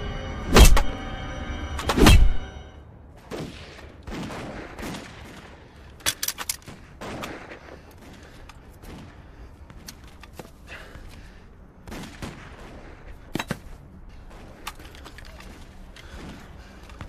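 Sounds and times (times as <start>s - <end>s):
gunshots: 0.5s - 1.0s, 1.8s - 2.5s, 3.2s - 6.0s, 6.6s - 9.4s.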